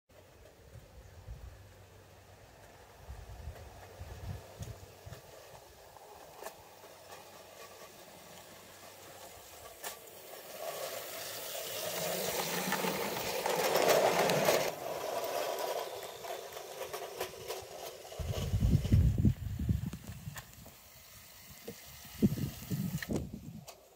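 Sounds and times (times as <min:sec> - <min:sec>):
wheels rattling on rail: 0:00.1 - 0:23.9
model train electric motor whirring: 0:00.2 - 0:23.9.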